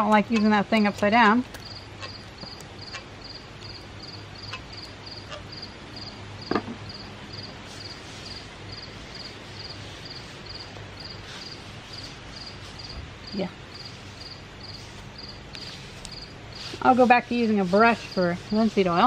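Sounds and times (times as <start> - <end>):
cricket chirping: 1.6 - 16.7.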